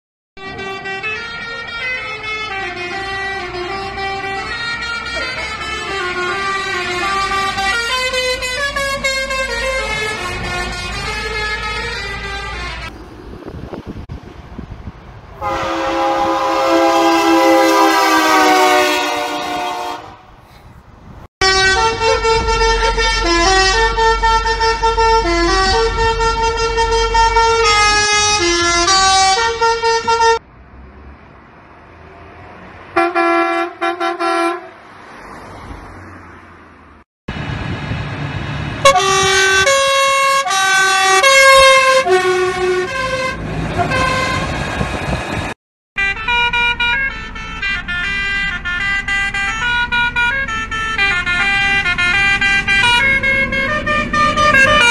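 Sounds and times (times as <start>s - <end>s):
musical air horn tune: 0.4s - 12.9s, 15.4s - 20.4s, 21.4s - 30.4s, 33.0s - 34.7s, 38.8s - 44.5s, 46.0s - 54.9s
short horn blasts: 0.4s - 12.9s, 15.4s - 20.6s, 21.4s - 30.4s, 33.0s - 34.7s, 38.8s - 44.6s
multi-note horn chord: 15.4s - 20.3s.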